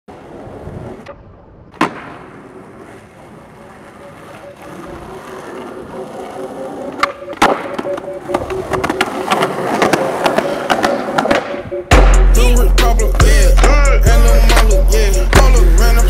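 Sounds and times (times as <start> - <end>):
skateboard wheels rolling on asphalt: 0.1 - 12.1
skateboard hitting ground: 0.1 - 12.2
skateboard tail pop: 1.8 - 2.4.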